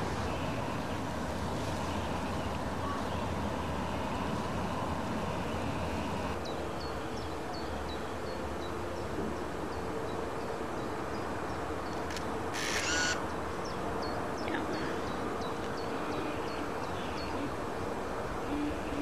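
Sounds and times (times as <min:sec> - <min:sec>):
microphone hiss: 0:00.0 - 0:19.0.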